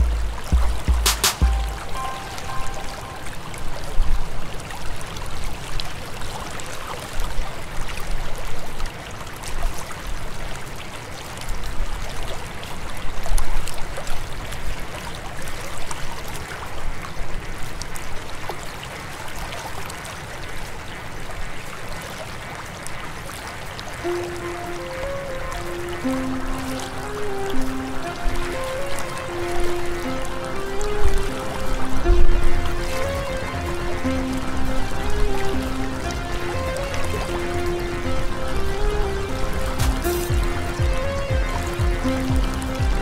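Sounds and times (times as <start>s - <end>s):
low rumbles: 0.0s - 2.0s
river water rushing: 0.0s - 11.4s, 21.8s - 43.0s.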